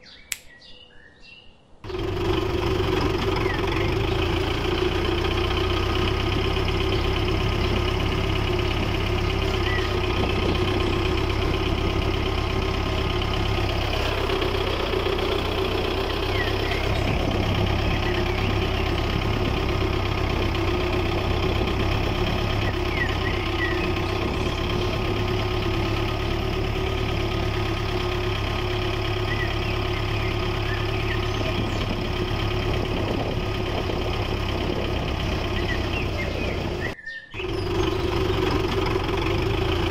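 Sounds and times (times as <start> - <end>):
diesel engine idling: 1.8 - 39.9
faint bird chirps: 9.2 - 11.0, 16.2 - 17.0, 22.5 - 25.1, 29.2 - 32.0, 35.4 - 38.1.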